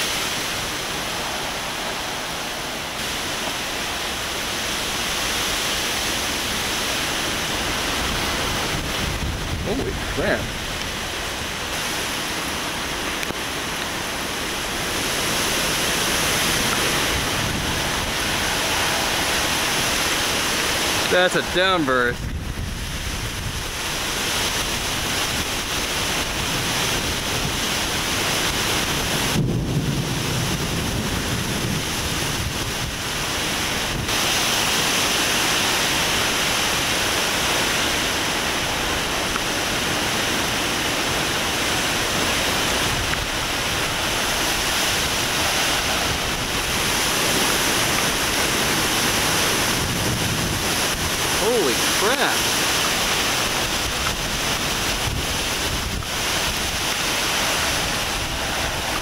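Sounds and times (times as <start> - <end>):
torrential rain: 0.0 - 59.0
wind buffeting microphone: 0.0 - 59.0.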